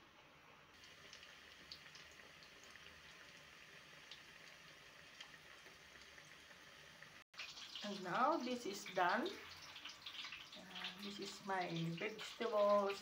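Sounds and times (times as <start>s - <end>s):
food deep-frying in hot oil: 0.1s - 13.0s
oil pops and crackles: 7.4s - 8.0s, 9.5s - 11.0s.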